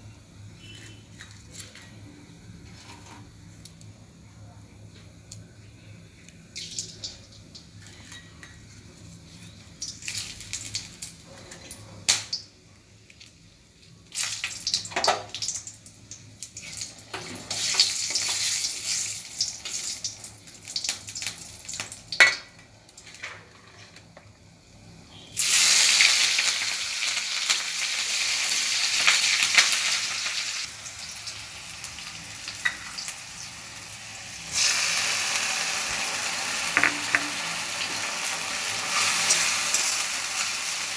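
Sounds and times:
spatula scraping a pan: 0:02.6 - 0:03.3
spices sizzling in hot oil: 0:06.5 - 0:24.0, 0:24.6 - 0:40.9.

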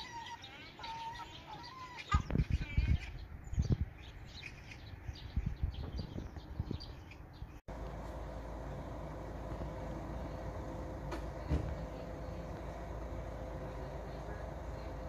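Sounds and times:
gulls calling: 0:00.0 - 0:03.3
vehicle engine hum: 0:07.7 - 0:15.0.

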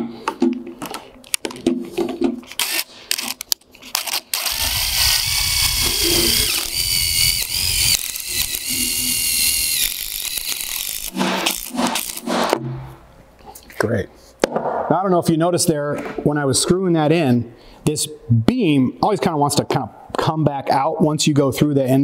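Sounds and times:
cordless drill whining: 0:04.3 - 0:12.3.

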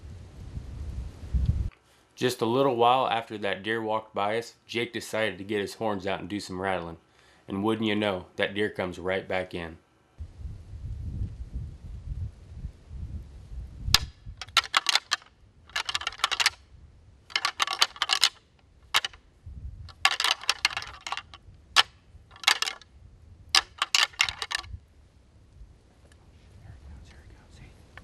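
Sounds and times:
antlers clicking and clacking: 0:14.0 - 0:16.6, 0:17.3 - 0:19.2, 0:19.9 - 0:22.8, 0:23.5 - 0:24.7.

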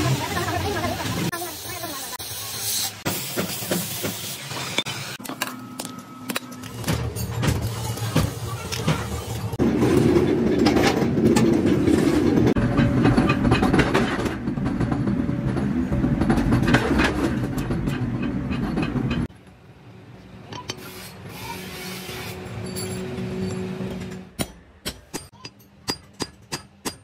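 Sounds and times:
metal clinks and knocks: 0:22.6 - 0:23.7.

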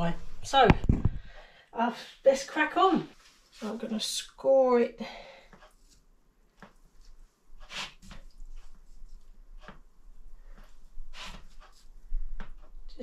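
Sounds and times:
knife scraping pork rind: 0:07.6 - 0:08.2.

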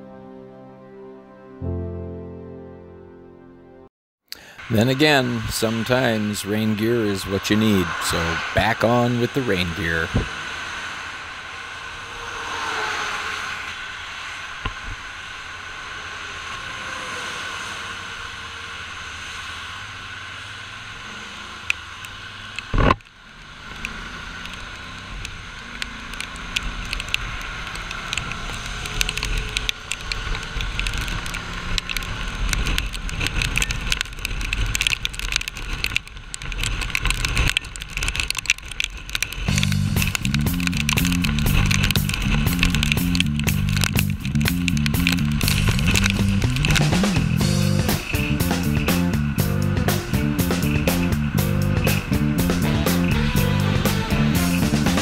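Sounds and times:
wind and tyre-spray rush: 0:04.6 - 0:55.0
motorcycle engine: 0:09.2 - 0:55.0
raindrops striking camera: 0:22.5 - 0:55.0.

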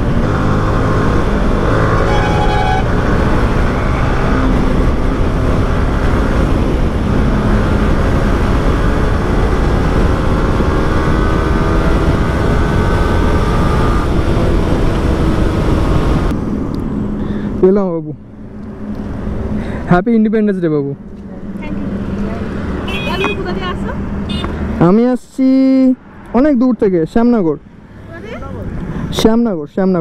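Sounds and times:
road and wind noise: 0:00.0 - 0:30.0
vehicle horn: 0:01.8 - 0:03.1, 0:22.8 - 0:23.6, 0:24.3 - 0:24.6.

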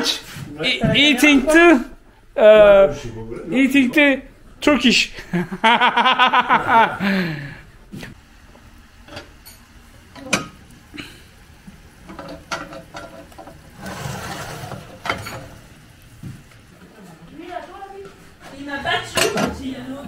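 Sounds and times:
person laughing: 0:05.1 - 0:07.6
metal oven door clanking: 0:12.1 - 0:15.8.

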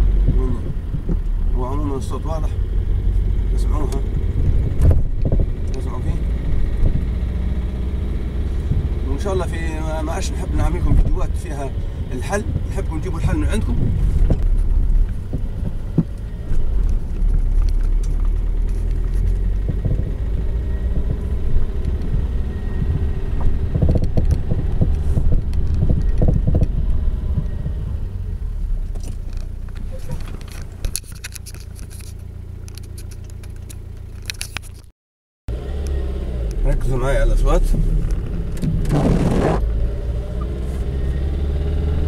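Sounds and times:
low road rumble: 0:00.0 - 0:34.9, 0:35.5 - 0:42.0
suspension knocks and rattles: 0:03.9 - 0:07.1, 0:12.4 - 0:27.8.

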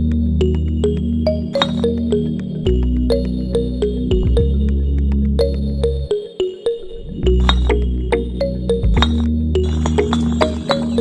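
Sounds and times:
sustained bass: 0:00.0 - 0:06.1
plucked synthesizer notes: 0:00.0 - 0:11.0.

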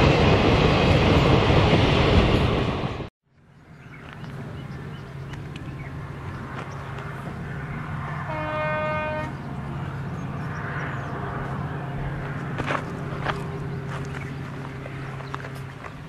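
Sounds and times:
low rumble of train: 0:00.0 - 0:16.0
locomotive horn: 0:08.1 - 0:09.5.

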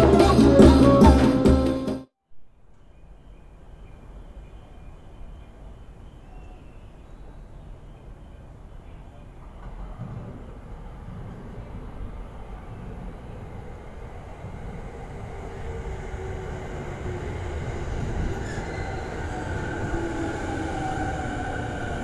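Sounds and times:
train wheels rumbling on rails: 0:08.2 - 0:22.0
traction motors whining: 0:11.1 - 0:22.0.

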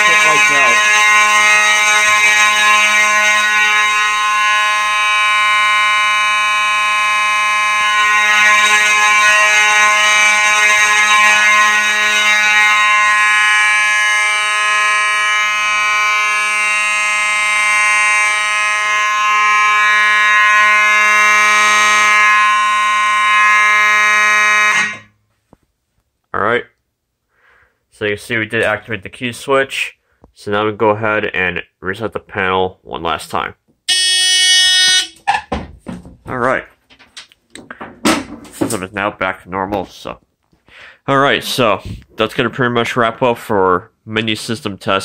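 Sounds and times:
fire alarm horns buzzing: 0:00.0 - 0:25.2, 0:33.9 - 0:35.5.

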